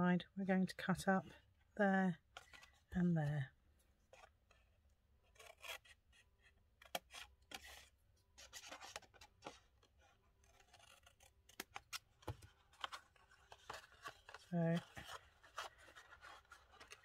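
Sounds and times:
paper rustling: 5.3s - 17.0s.

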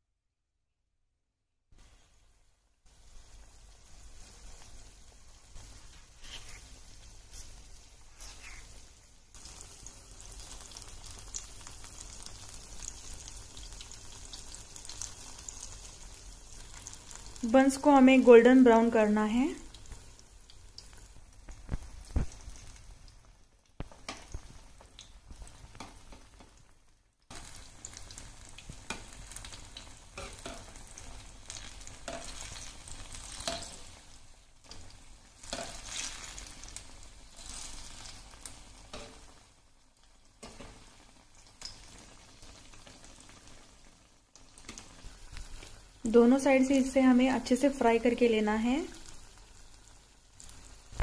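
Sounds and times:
buns sizzling in hot oil: 1.8s - 51.0s.

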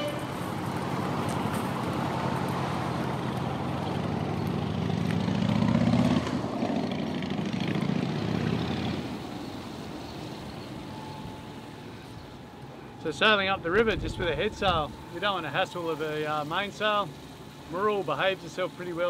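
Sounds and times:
engine droning: 0.0s - 19.0s.

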